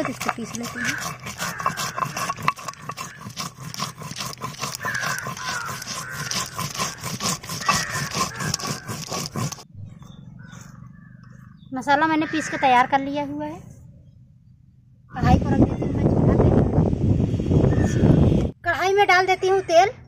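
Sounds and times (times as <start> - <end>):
stone scraping over stone: 0.0 - 9.7.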